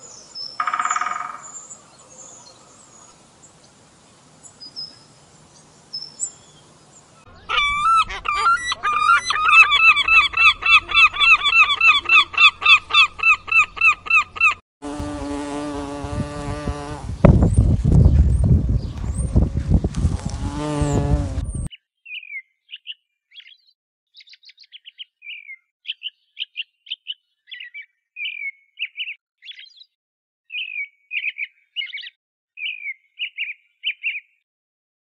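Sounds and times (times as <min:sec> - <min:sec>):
toucan calling: 0:00.6 - 0:01.8, 0:07.3 - 0:14.6
bumblebee buzzing: 0:14.8 - 0:17.9, 0:18.5 - 0:21.7.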